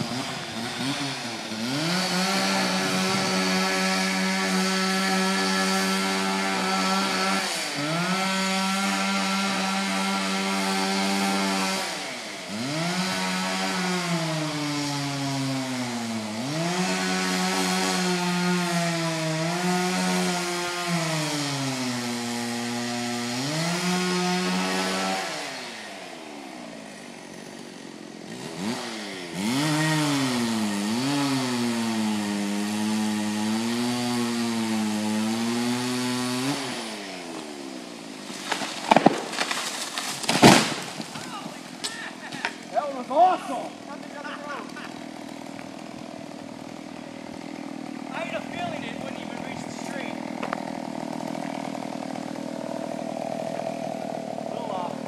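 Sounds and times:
chainsaw cutting into tree trunk: 0.0s - 55.0s.

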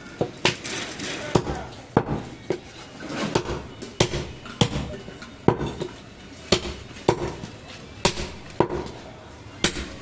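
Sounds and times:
cleaver chopping ribs on wood: 3.4s - 4.9s, 6.5s - 7.4s, 8.0s - 9.0s, 9.6s - 10.0s.

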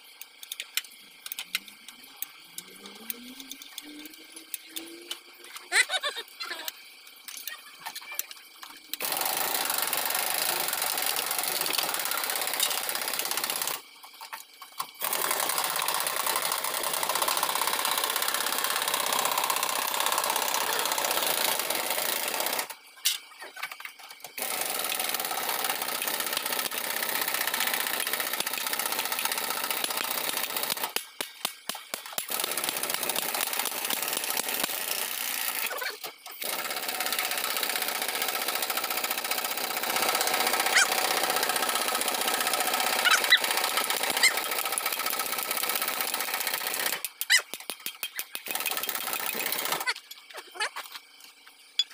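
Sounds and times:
machine rattling: 9.0s - 13.8s, 14.9s - 23.7s, 24.4s - 50.0s.

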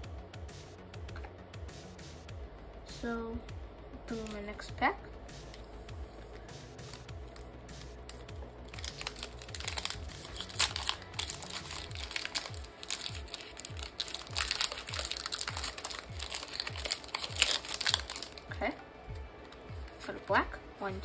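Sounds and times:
music with low beat: 0.0s - 21.0s
foil wrapper crinkling and tearing: 6.8s - 18.5s.

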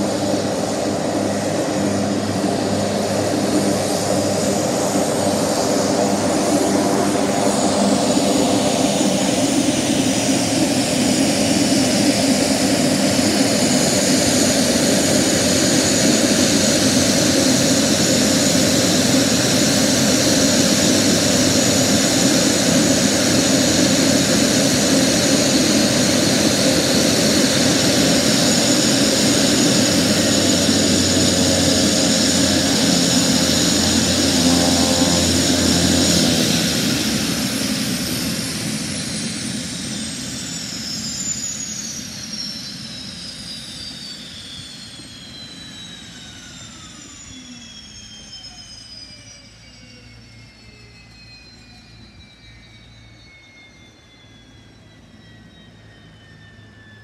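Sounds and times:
turboprop engine idling: 0.0s - 40.3s
turbine whine: 0.0s - 57.0s.

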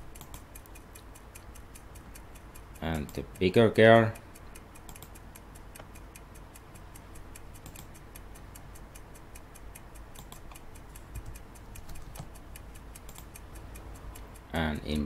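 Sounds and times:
fast ticking: 0.0s - 15.0s.

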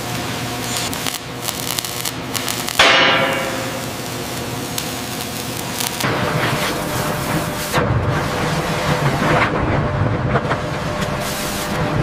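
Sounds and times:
steady hiss: 0.0s - 7.8s
crackle: 0.0s - 12.0s
hammer striking metal: 2.8s - 4.0s
loud sudden metal hit: 2.8s - 4.0s.

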